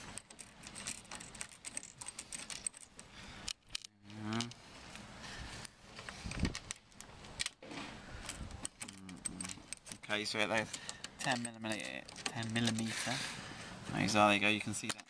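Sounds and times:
screws clicking and rattling: 0.0s - 4.6s, 8.2s - 13.2s.

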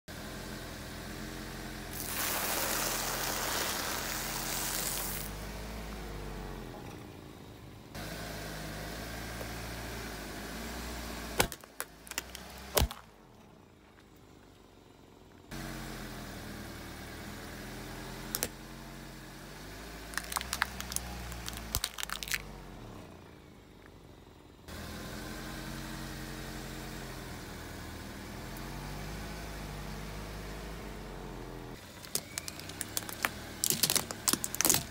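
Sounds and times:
car engine running: 0.1s - 34.9s
tyre crunching on asphalt: 1.9s - 5.4s, 11.4s - 13.1s, 20.1s - 22.5s, 31.8s - 34.9s
plastic containers cracking: 11.4s - 13.1s, 20.1s - 22.5s, 31.8s - 34.9s.

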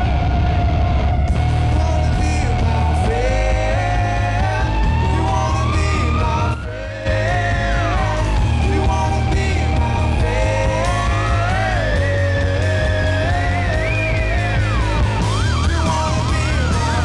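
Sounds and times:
live rock band playing: 0.0s - 17.0s.

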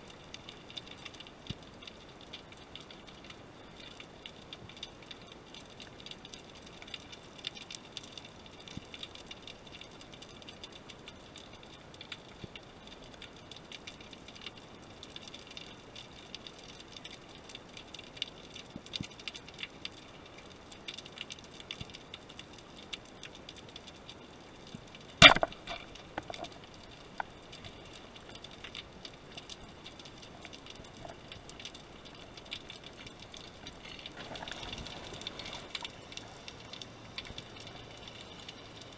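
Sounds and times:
underwater crackle and ticking: 0.0s - 38.9s
small clicks: 0.2s - 38.9s
speargun firing underwater: 25.2s - 26.3s.

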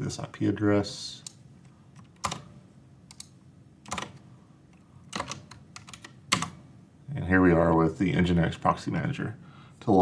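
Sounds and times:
keyboard key presses: 3.1s - 4.2s, 5.1s - 6.6s.

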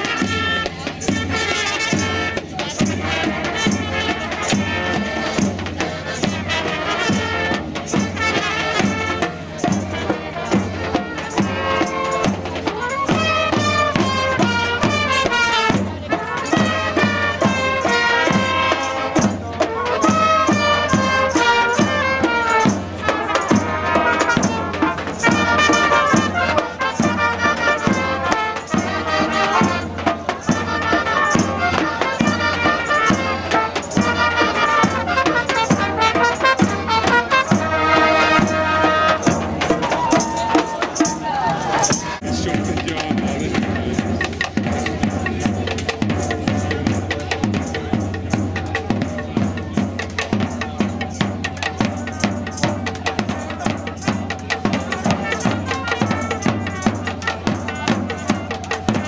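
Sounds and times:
brass band playing: 0.0s - 59.0s
steady beat: 33.1s - 52.0s.

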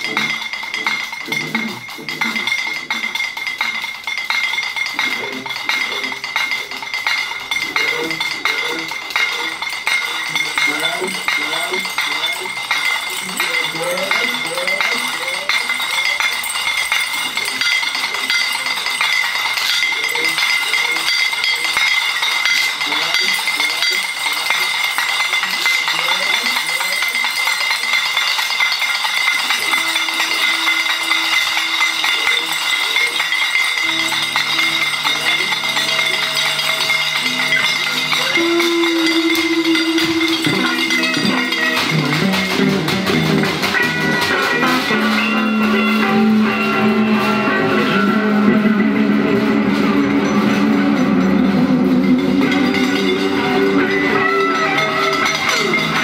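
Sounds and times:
rattling and clinking: 0.0s - 48.9s, 49.6s - 56.0s
high ringing tone: 6.2s - 48.8s
held electric guitar notes: 37.4s - 56.0s.

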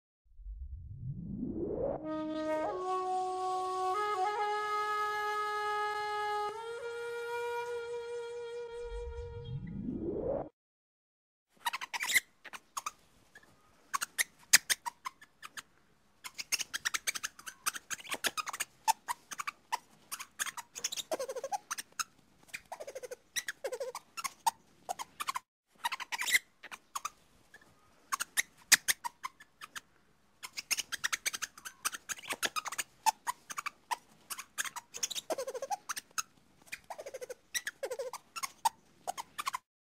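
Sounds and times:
lemur chirping: 11.6s - 39.6s.

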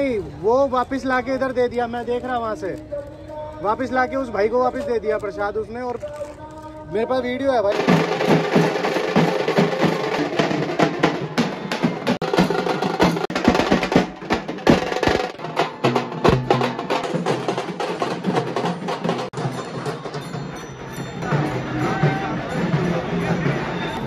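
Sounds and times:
procession drumming: 7.7s - 20.5s.

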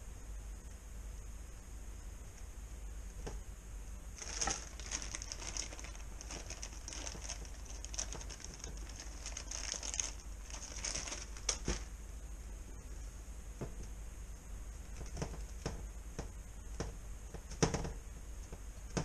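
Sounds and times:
plastic bag crinkling: 4.2s - 11.9s.

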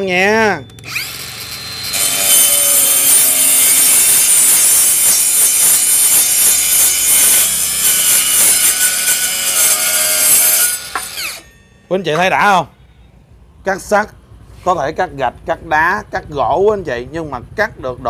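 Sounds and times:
circular saw cutting steel pipe: 0.4s - 11.7s.

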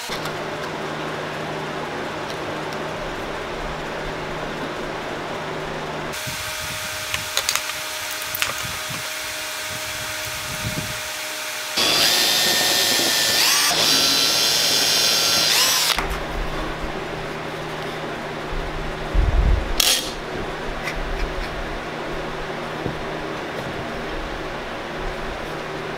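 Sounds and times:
cordless drill whining: 6.2s - 16.0s.

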